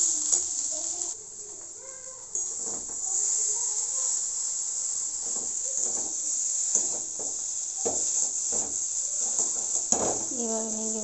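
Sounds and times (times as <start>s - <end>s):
potatoes sizzling in a wok: 0.0s - 11.0s
metal spatula scraping pan: 5.2s - 10.3s.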